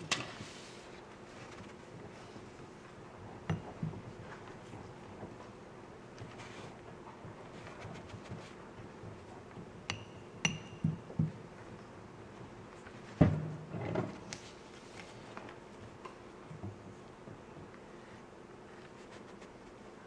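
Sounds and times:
high-ringing clinks of a dish: 9.9s - 10.8s.

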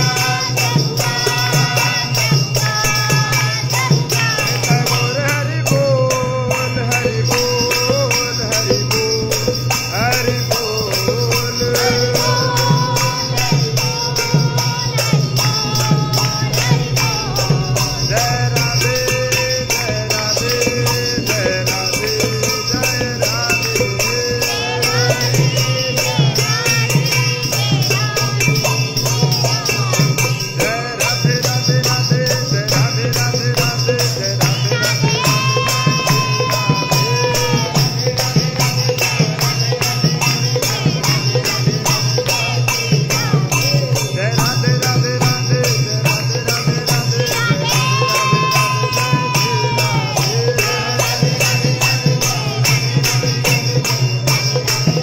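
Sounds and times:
wavering melody: 0.0s - 32.1s
jingling metal percussion: 0.0s - 55.0s
low drone: 8.2s - 26.6s.

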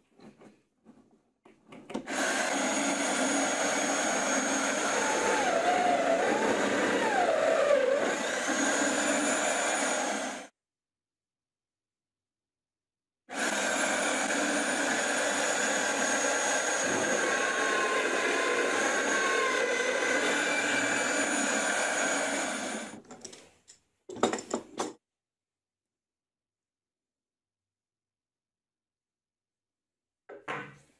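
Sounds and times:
router motor whine: 2.1s - 10.5s, 13.4s - 23.0s.

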